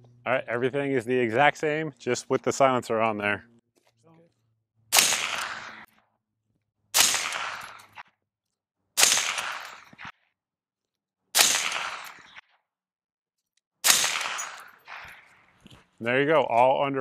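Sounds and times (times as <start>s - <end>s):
suppressed rifle shots: 4.9s - 5.9s, 7.0s - 8.0s, 9.0s - 10.1s, 11.4s - 12.4s, 13.8s - 15.3s.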